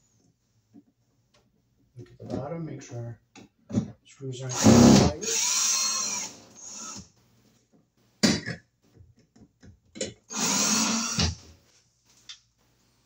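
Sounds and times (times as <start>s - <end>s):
cordless drill whining: 4.5s - 7.0s, 10.3s - 11.4s.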